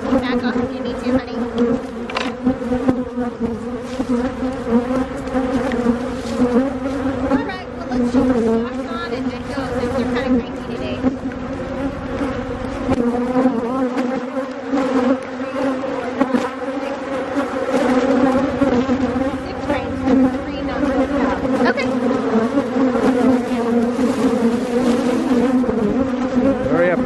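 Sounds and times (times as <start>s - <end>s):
honeybees buzzing loudly: 0.0s - 27.0s.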